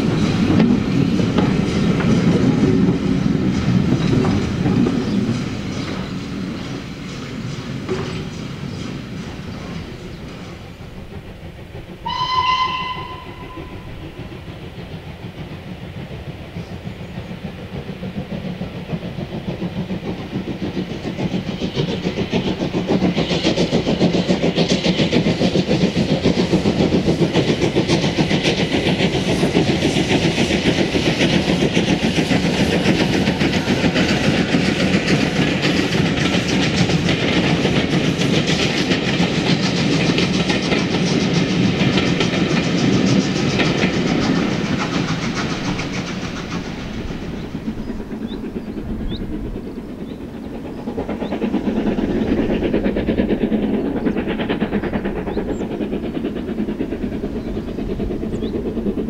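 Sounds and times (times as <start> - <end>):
steam locomotive exhaust beats: 0.0 - 59.0
train wheels clattering: 0.0 - 59.0
steam locomotive whistle: 12.0 - 14.2.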